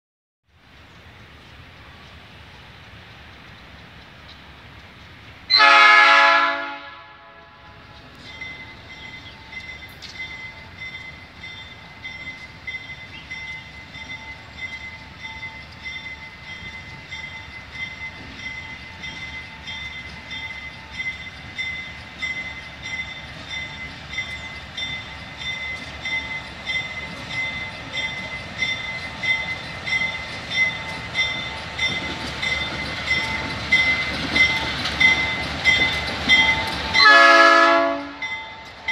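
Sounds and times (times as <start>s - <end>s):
locomotive engine rumble: 0.6s - 38.9s
locomotive horn blast: 5.5s - 8.0s, 37.0s - 38.3s.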